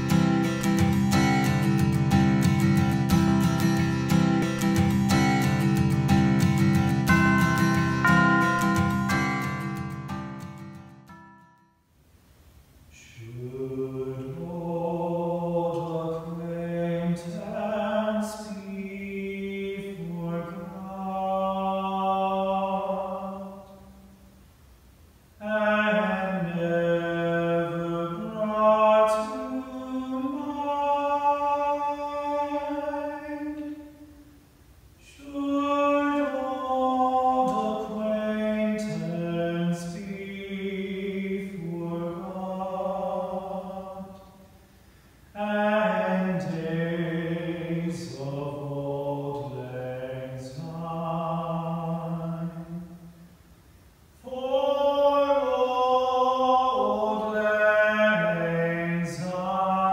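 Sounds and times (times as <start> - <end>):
men singing in close harmony: 13.0 - 23.7, 25.4 - 33.8, 35.0 - 44.4, 45.4 - 53.0, 54.2 - 59.9.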